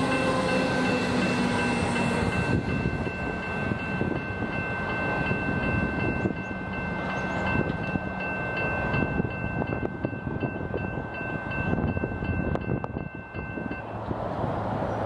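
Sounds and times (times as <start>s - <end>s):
electric train rumbling past: 0.0s - 15.0s.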